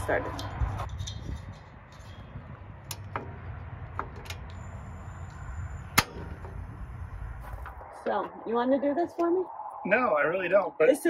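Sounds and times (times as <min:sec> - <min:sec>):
burner igniter snapping: 0:05.3 - 0:06.7.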